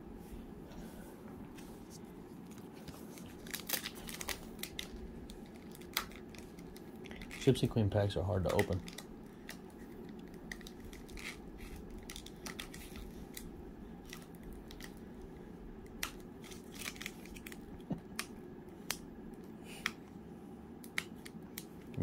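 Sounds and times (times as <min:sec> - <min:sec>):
low steady hum: 0:00.0 - 0:22.0
wrapper crinkling: 0:02.4 - 0:07.7, 0:08.4 - 0:15.0, 0:15.9 - 0:17.7
sharp clicks and snaps: 0:20.8 - 0:22.0.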